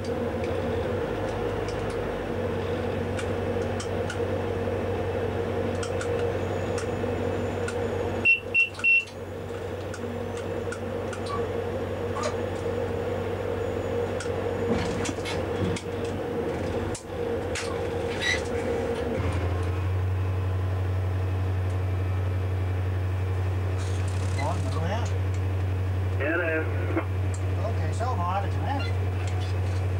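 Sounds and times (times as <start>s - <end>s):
diesel locomotive engine running: 0.0s - 29.9s
short high beeps: 8.2s - 9.1s.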